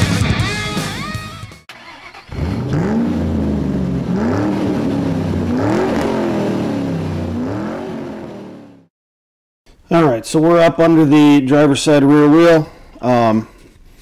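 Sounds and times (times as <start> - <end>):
car engine revving: 1.8 - 8.9.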